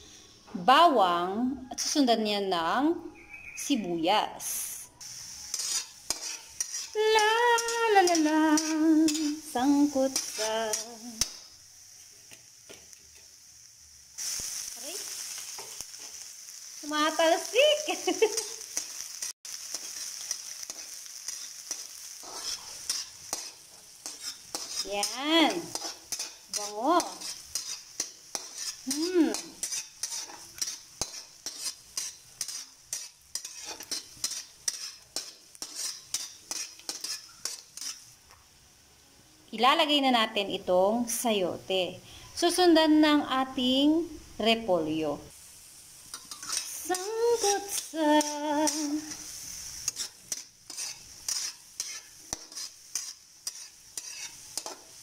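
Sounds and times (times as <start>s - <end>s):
oil sizzling: 0.0s - 55.0s
metal spatula scraping wok: 1.6s - 2.5s, 4.4s - 38.2s, 46.0s - 55.0s.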